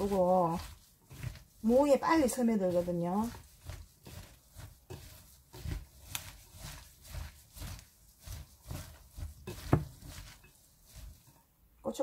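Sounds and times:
wet squishing of tossed radish: 0:00.0 - 0:11.7.

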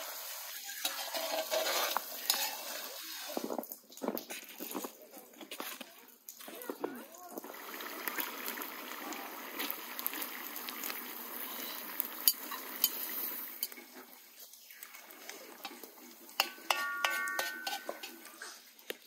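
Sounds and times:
carrots sizzling in hot oil: 0:00.0 - 0:03.6, 0:07.2 - 0:19.0
metal skimmer stirring and scraping: 0:00.0 - 0:03.6, 0:11.4 - 0:18.7
utensils clinking: 0:15.6 - 0:18.6.

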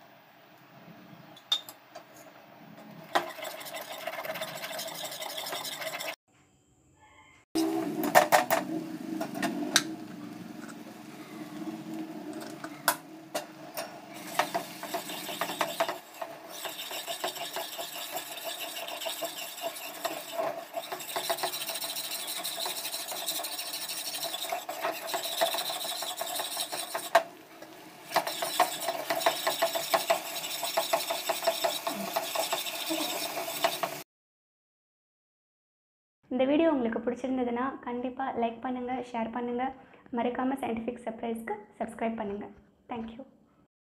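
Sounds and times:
spoon scraping dough in metal pan: 0:03.0 - 0:06.2, 0:13.3 - 0:27.2, 0:28.1 - 0:34.0.

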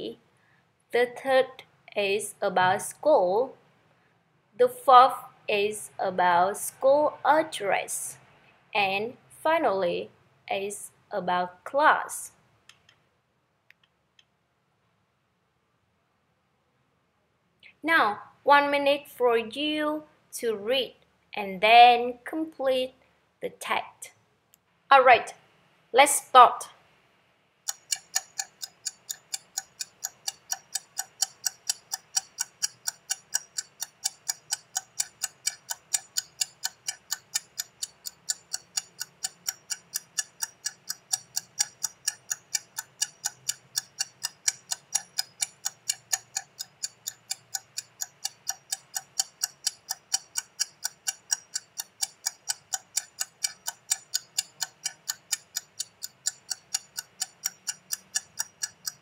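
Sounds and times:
countdown timer ticking: 0:27.7 - 0:59.0.

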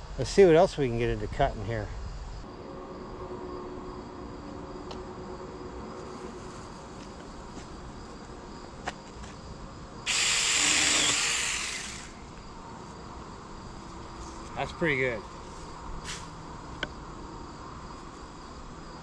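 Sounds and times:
leafy branch falling with hissing rush: 0:15.6 - 0:16.4.

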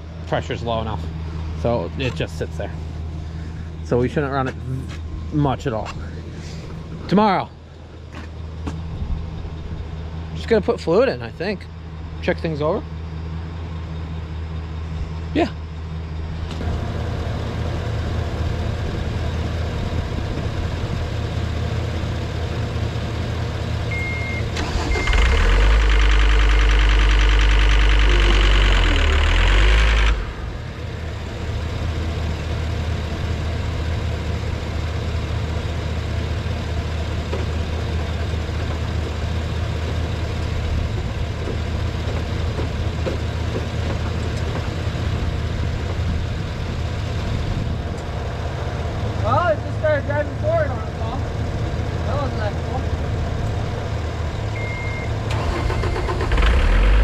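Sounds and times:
diesel engine idling: 0:00.0 - 0:57.0
short beep: 0:23.9 - 0:25.3, 0:54.6 - 0:55.1.

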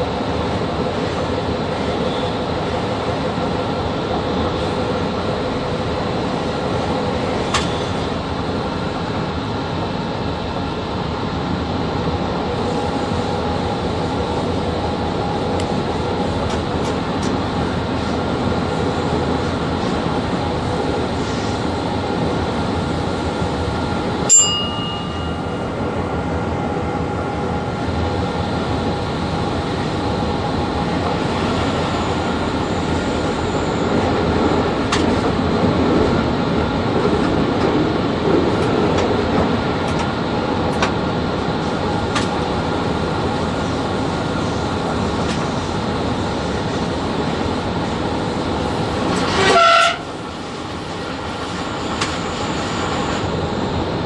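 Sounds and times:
short horn blast: 0:49.4 - 0:50.1.

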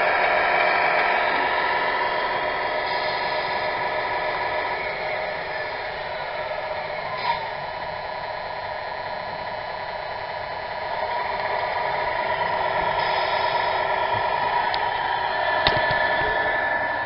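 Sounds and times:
toy truck electric whine: 0:00.0 - 0:17.0
water pump spraying: 0:02.4 - 0:06.2, 0:11.0 - 0:16.6.

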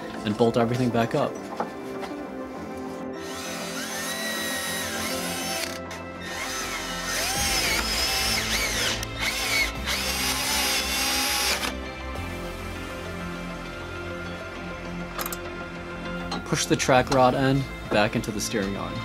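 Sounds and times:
background music: 0:00.0 - 0:19.0
cordless drill motor whine: 0:03.2 - 0:12.4.

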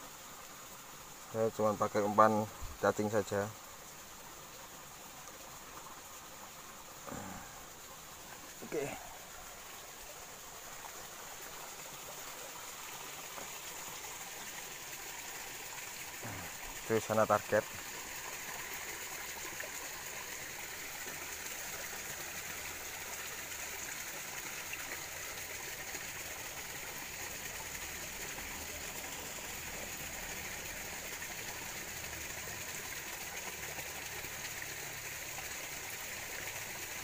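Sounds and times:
shallow stream flowing: 0:00.0 - 0:37.0.

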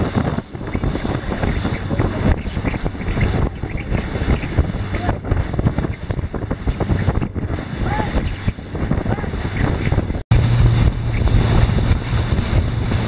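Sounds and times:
motorboat engine drone: 0:00.0 - 0:13.0
wind buffeting microphone: 0:00.0 - 0:13.0
spray rushing off hull: 0:10.3 - 0:13.0.

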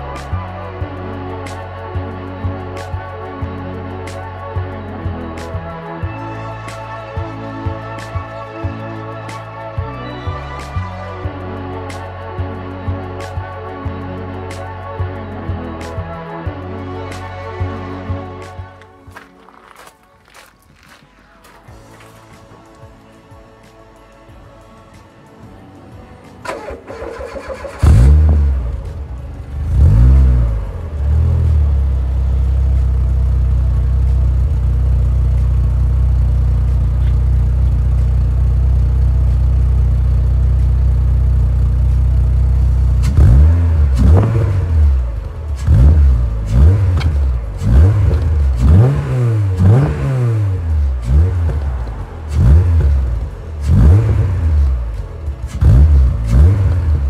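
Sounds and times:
car engine starting and revving: 0:26.4 - 0:57.0.

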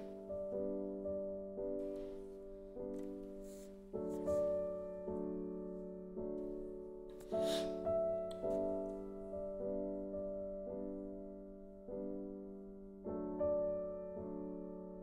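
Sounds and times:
soft piano chords: 0:00.0 - 0:15.0.

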